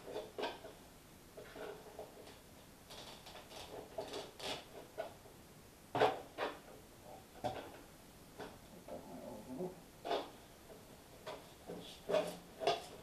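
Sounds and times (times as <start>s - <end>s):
knife tapping and scraping board: 10.1s - 13.0s.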